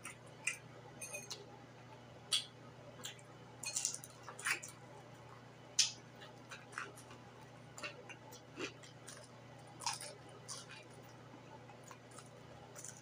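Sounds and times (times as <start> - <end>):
faint low hum: 0.0 - 13.0
crunchy chewing: 2.3 - 5.2, 5.8 - 13.0.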